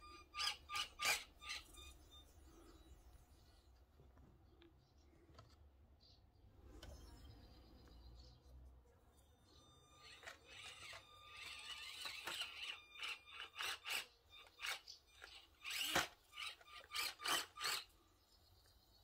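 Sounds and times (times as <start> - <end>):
small electric motor whirring: 0.0 - 2.4, 9.2 - 17.9.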